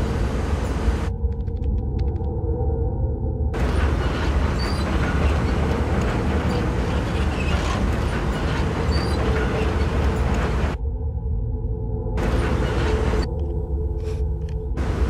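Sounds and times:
combine harvester rumbling: 3.6 - 10.8, 12.2 - 13.4, 14.8 - 15.0.

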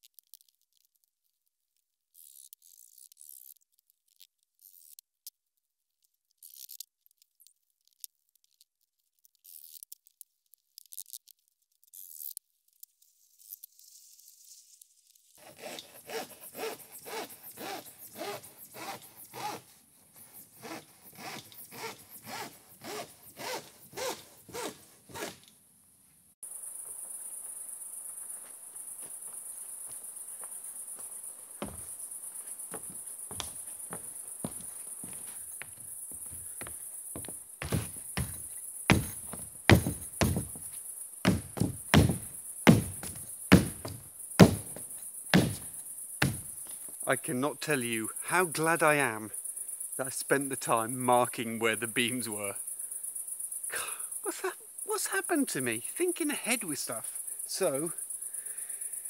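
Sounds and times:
crickets chirring: 11.8 - 25.5, 26.4 - 59.0.

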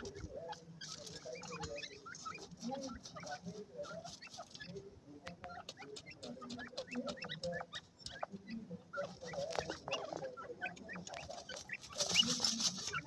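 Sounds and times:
birds chirping softly: 0.0 - 13.0
birds pecking seed clicks: 4.7 - 8.5.

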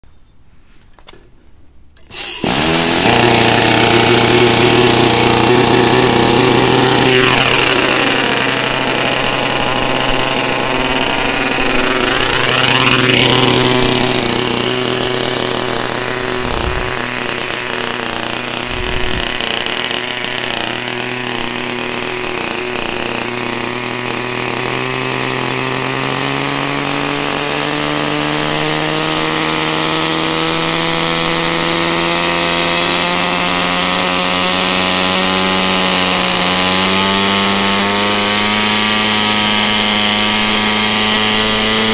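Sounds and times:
electric starter: 2.0 - 41.9
model helicopter engine running: 2.0 - 41.9.

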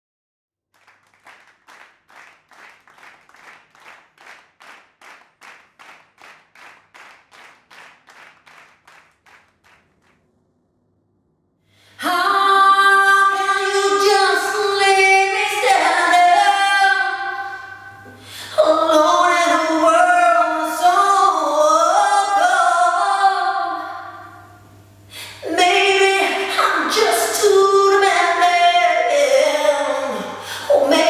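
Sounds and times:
soft evenly spaced claps: 0.8 - 10.2
women singing a cappella harmony: 12.0 - 24.2, 25.4 - 31.0.

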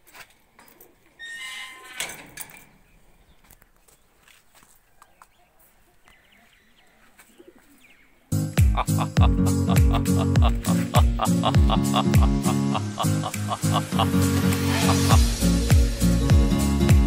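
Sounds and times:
music with steady beat: 8.4 - 17.0.

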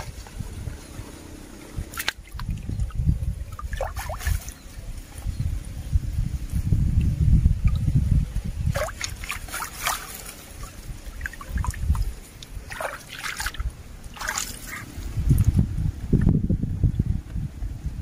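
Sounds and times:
water splashing and dripping: 1.8 - 4.8, 8.6 - 15.6.

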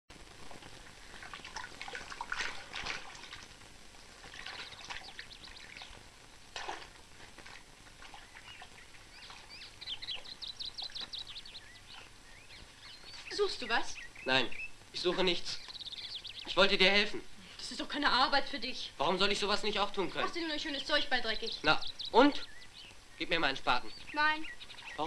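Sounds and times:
water trickling: 0.4 - 16.8
birds singing: 4.0 - 6.0, 8.0 - 25.0
bird trill: 8.2 - 16.7, 20.6 - 25.0.

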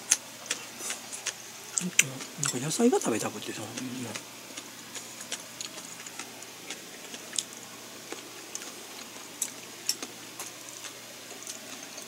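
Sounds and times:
faint room hiss: 0.0 - 12.0
chewing clicks and taps: 3.7 - 4.2, 4.9 - 7.5.

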